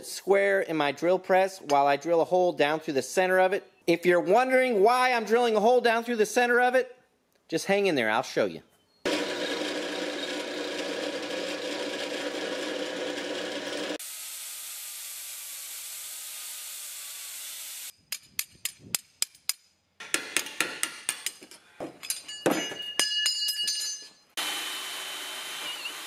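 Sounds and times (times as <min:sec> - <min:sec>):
drill press drilling metal: 0:09.1 - 0:14.0, 0:24.4 - 0:26.0
hammer tapping metal: 0:18.1 - 0:24.2.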